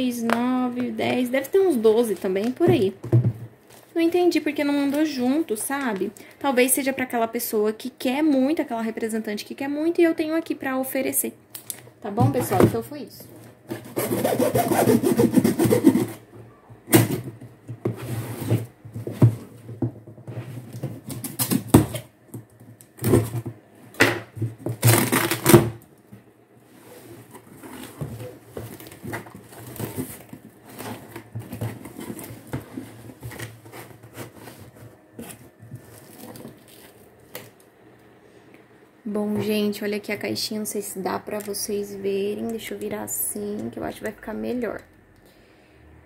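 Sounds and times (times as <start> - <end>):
cardboard flaps scraping and rustling: 17.8 - 19.6, 26.7 - 37.0.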